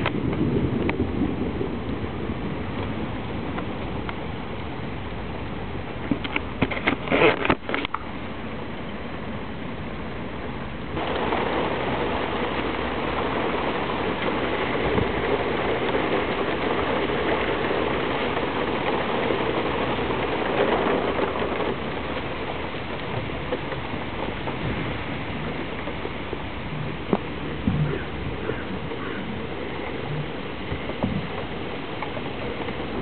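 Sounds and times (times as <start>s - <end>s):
steady rain falling: 0.0s - 33.0s.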